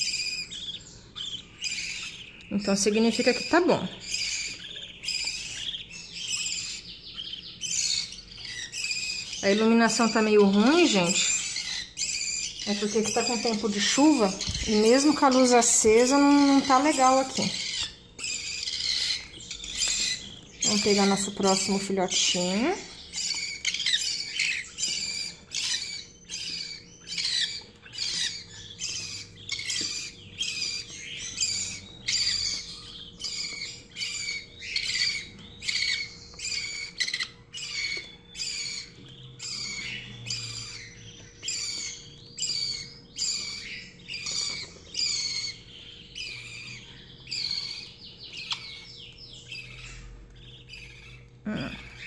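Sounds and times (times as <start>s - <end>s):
bird chick begging calls: 0.0s - 51.2s.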